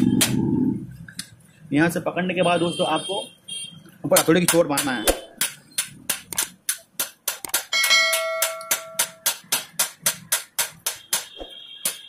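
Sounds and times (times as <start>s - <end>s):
hammer striking steel punch: 4.2s - 12.0s
metallic ring: 7.7s - 9.2s.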